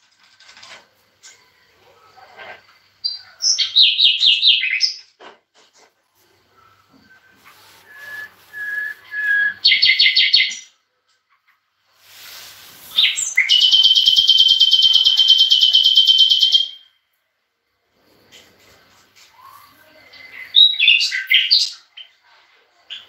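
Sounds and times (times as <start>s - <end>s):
songbirds whistling and trilling: 3.0s - 5.2s, 6.6s - 10.8s, 12.9s - 17.0s, 19.3s - 22.2s.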